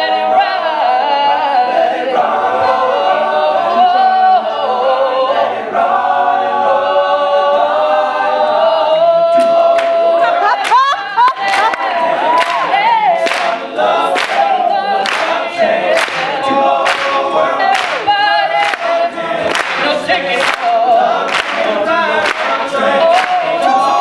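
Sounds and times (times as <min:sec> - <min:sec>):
layered backing vocals: 0:00.0 - 0:24.0
hand claps: 0:09.4 - 0:10.0, 0:10.6 - 0:23.7.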